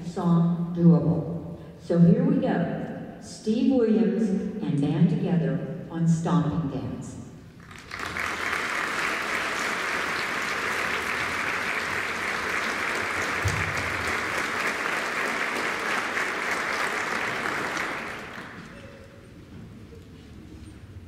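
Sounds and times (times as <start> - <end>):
audience applauding: 7.6 - 19.2
low thump: 13.4 - 14.0.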